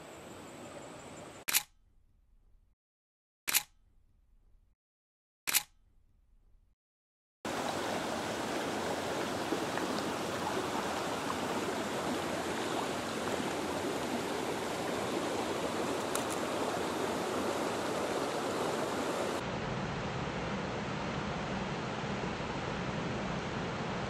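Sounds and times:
stream water rushing: 7.5s - 20.2s.

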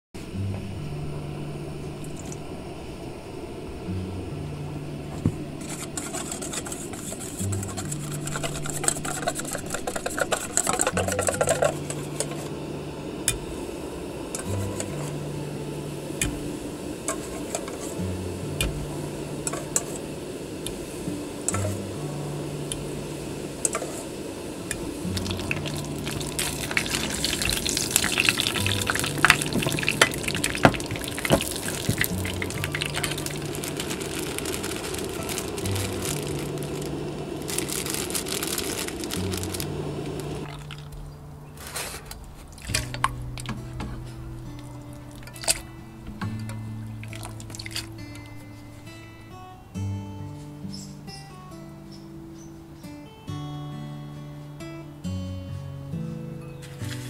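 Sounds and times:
oil sizzling in a frying pan: 13.1s - 40.9s, 46.9s - 48.2s.

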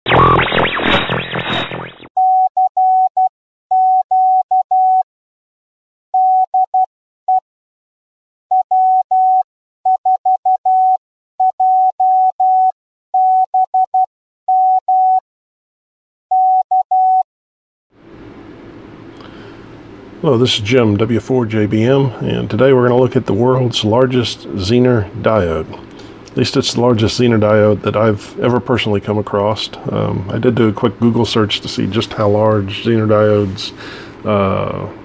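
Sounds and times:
intro music: 0.0s - 2.1s
morse code beeps: 0.1s - 5.0s, 6.2s - 7.4s, 8.5s - 15.2s, 16.3s - 17.2s.

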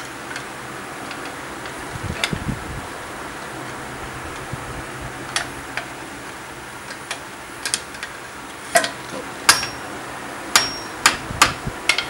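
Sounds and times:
pry bar clinking on metal: 8.8s - 9.8s, 10.6s - 11.2s.

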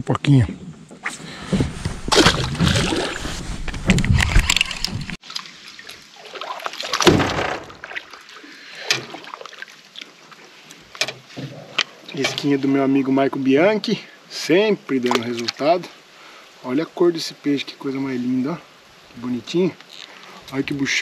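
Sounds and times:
water splashing at boat side: 1.1s - 12.6s.

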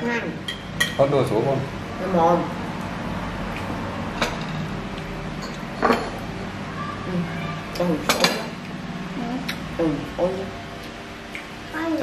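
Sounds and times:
steady low hum: 0.0s - 12.0s
cutlery clinking on plates: 5.4s - 6.2s.

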